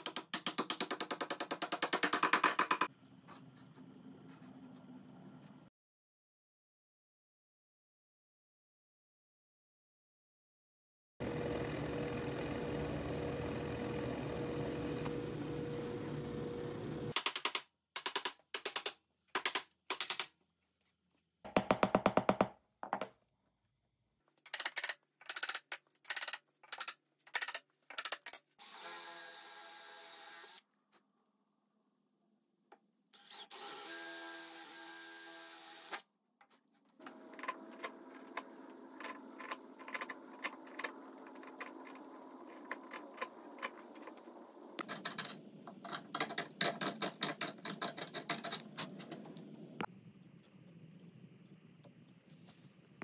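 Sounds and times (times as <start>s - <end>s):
drill boring into wood: 11.2s - 17.1s, 28.6s - 30.6s, 33.2s - 36.0s.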